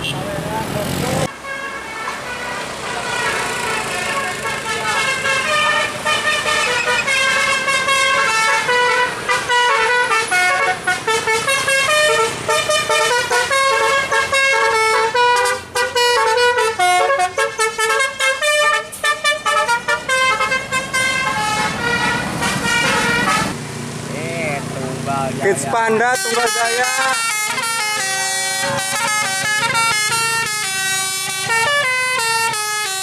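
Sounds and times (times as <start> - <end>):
multi-tone musical bus horn: 1.3 - 23.6, 26.0 - 33.0.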